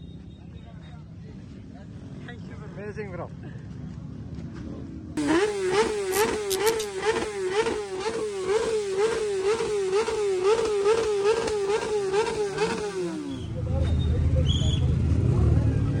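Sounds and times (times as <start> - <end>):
engine at high revs: 5.2 - 13.5.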